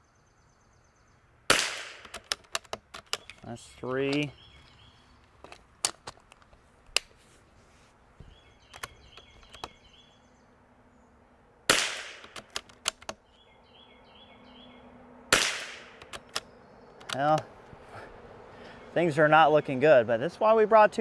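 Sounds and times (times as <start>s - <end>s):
rifle handling clicks: 2.0s - 4.3s, 12.1s - 13.2s
rifle bolt cycling clicks: 12.1s - 13.2s.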